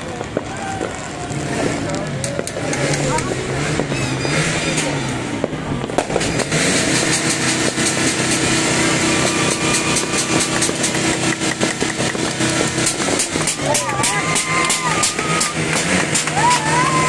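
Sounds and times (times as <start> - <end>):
fireworks and firecrackers popping: 0.0 - 17.0.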